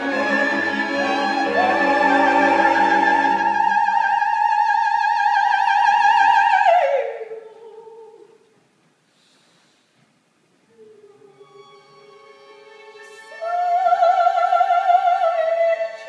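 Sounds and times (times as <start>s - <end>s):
musical accompaniment: 0.0s - 4.4s
operatic soprano singing high note: 0.0s - 8.3s.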